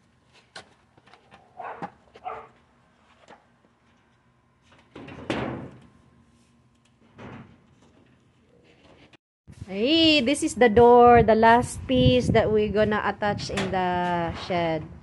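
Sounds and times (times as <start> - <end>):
sheet-metal panels rattling: 4.9 - 5.8.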